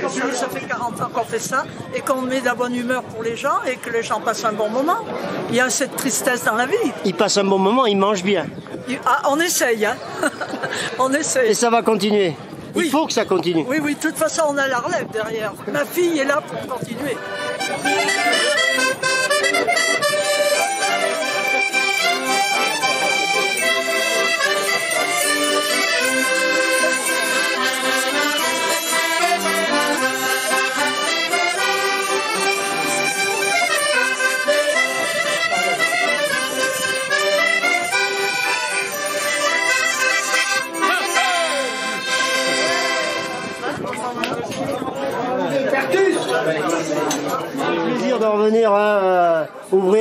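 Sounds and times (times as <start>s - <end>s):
button accordions playing folk tune: 16.6s - 43.9s.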